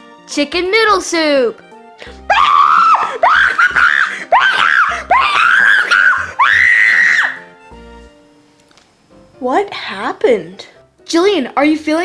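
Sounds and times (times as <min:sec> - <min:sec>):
girl screaming: 0:02.3 - 0:07.4.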